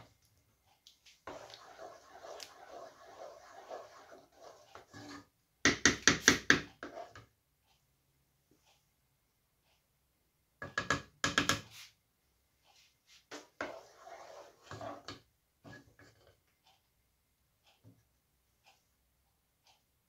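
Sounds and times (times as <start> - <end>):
stirring thick sauce: 1.2 - 5.3, 6.8 - 7.2, 13.6 - 16.2
wooden spoon knocking on pot: 5.7 - 7.0.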